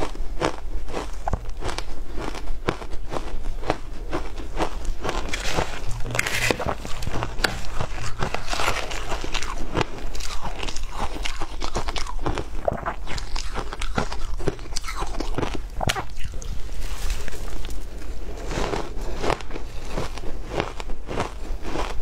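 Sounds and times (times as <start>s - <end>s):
ice crunching when chewed: 0.0s - 22.0s
metal spoon scraping shaved ice: 5.1s - 9.6s.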